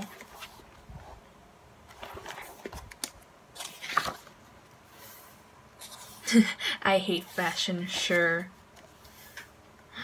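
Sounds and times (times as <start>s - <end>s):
paper pages rustling: 0.0s - 1.2s, 1.9s - 5.2s.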